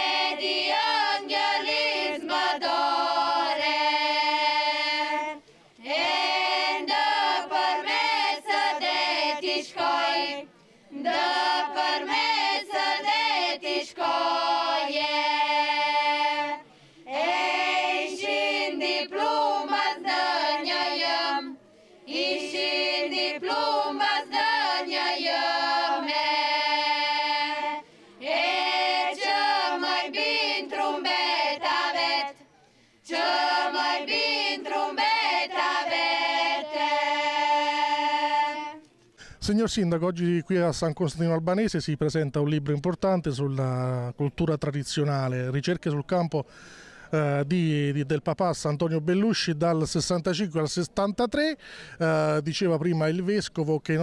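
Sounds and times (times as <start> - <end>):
women singing a cappella: 0.0 - 32.4, 33.0 - 38.8
singers breathing: 16.6 - 17.1, 21.6 - 22.1, 27.8 - 28.2, 32.6 - 33.1, 39.1 - 39.4, 46.4 - 47.2, 51.6 - 52.0.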